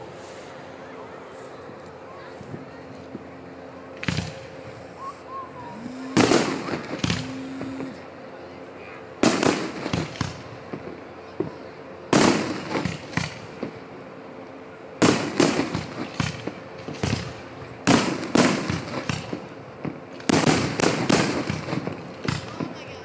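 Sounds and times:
firework shells booming: 6.0 - 8.0, 15.0 - 22.7.

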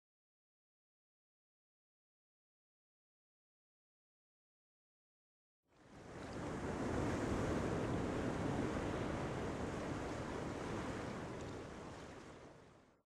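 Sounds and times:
wind: 5.7 - 13.0
ocean waves rushing: 6.0 - 12.7.

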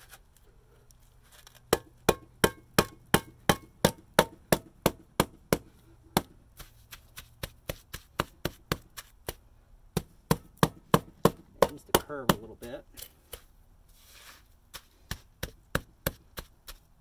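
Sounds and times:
hammer tapping on metal trowel: 1.7 - 6.3, 10.0 - 12.6.

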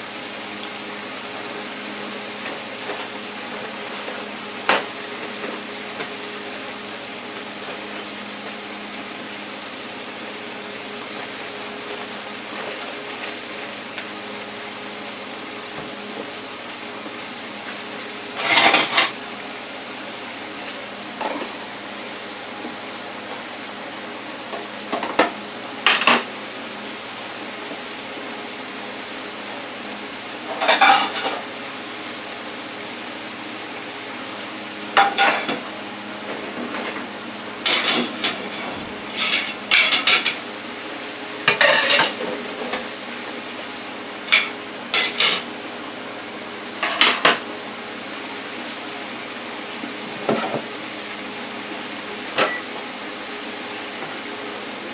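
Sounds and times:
deep fryer sizzling: 0.0 - 54.9
utensils clattering on tile countertop: 18.4 - 19.2, 24.5 - 26.3, 30.5 - 31.4, 35.0 - 35.6, 37.6 - 40.4, 41.4 - 42.9, 44.3 - 45.5, 46.8 - 47.4.

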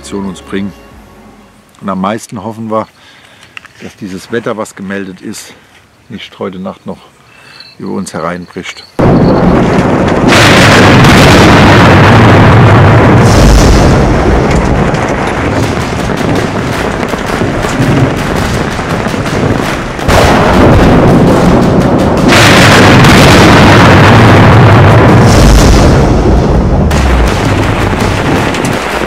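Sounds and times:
deep thunder rumble: 9.0 - 29.0
rain and hail pelting a tent: 13.4 - 24.7, 26.9 - 29.0.

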